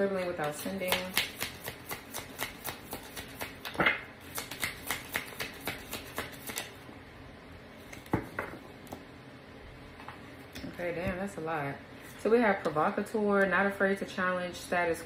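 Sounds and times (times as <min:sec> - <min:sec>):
cards being shuffled: 0:00.9 - 0:06.7.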